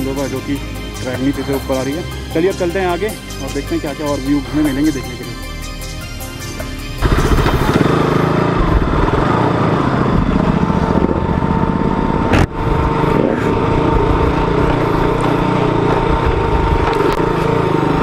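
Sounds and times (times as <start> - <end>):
motorcycle engine running: 7.0 - 18.0.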